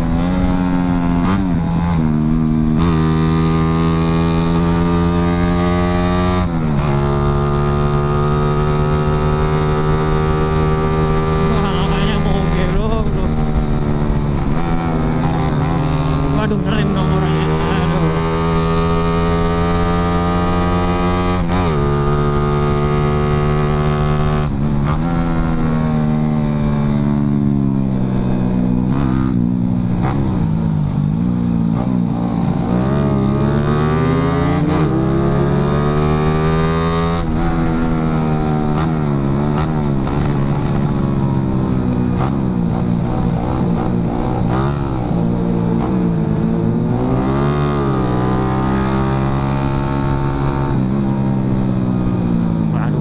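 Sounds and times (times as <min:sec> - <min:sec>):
motorcycle engine at speed: 0:00.0 - 0:53.0
wind rumble on microphone: 0:09.4 - 0:16.3.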